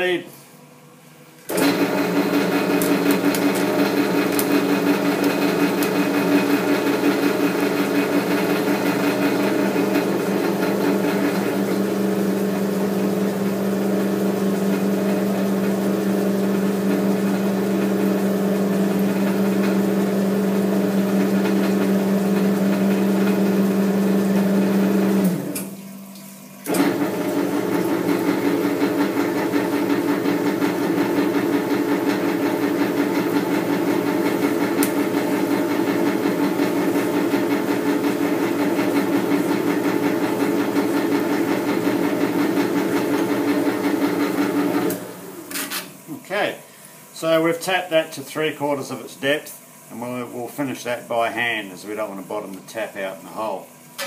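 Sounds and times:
metal lathe motor and gear hum: 0:01.4 - 0:25.8, 0:26.7 - 0:46.2.

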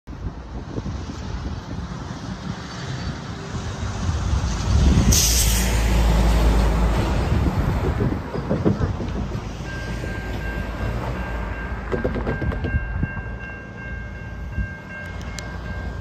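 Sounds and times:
truck engine rumble: 0:00.1 - 0:16.0
air brakes hissing: 0:05.1 - 0:06.0.

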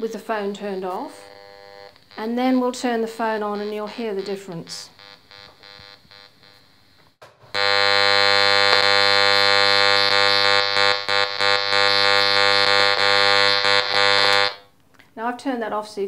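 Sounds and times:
loud steady buzz: 0:01.0 - 0:02.4, 0:07.5 - 0:14.6.

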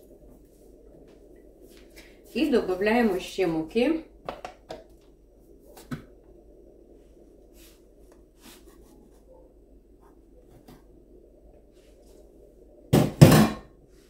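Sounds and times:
flour sifting through sieve: 0:07.5 - 0:09.4.

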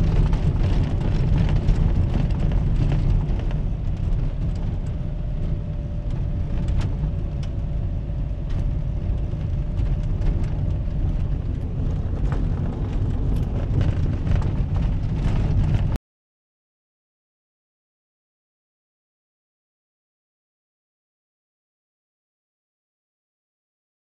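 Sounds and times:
vehicle cab rumble: 0:00.0 - 0:16.0.

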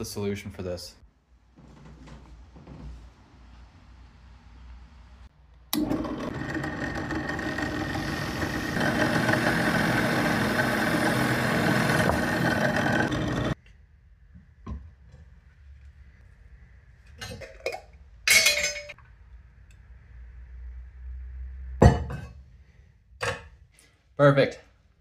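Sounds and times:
drill press motor running: 0:05.7 - 0:13.6.

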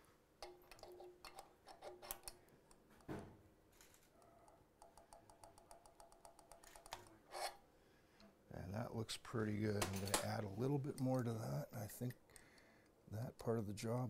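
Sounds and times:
metallic clicks and ticks: 0:03.8 - 0:07.2, 0:09.8 - 0:11.4.

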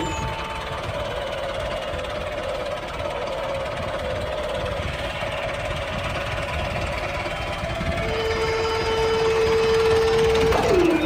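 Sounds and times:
toy excavator mechanical hum: 0:09.6 - 0:11.0.

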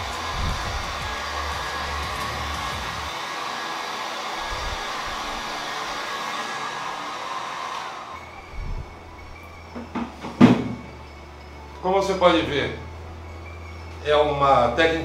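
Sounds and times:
heat gun blowing air: 0:00.0 - 0:09.0.

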